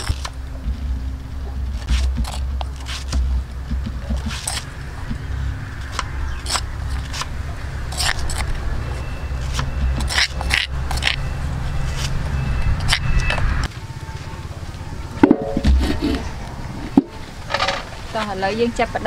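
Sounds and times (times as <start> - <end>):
steady low hum: 0.0 - 19.0
spoon scraping stone mortar: 4.1 - 4.7, 7.9 - 8.5, 9.4 - 11.2.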